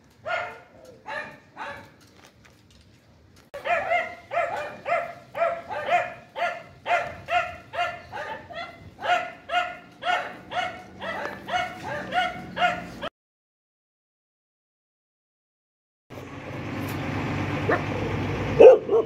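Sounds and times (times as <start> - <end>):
dog barking: 0.2 - 2.0, 3.6 - 13.1, 18.6 - 19.0.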